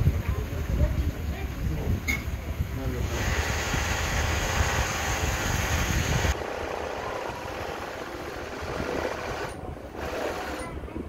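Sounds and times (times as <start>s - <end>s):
sewing machine rattle and hum: 3.0s - 10.8s.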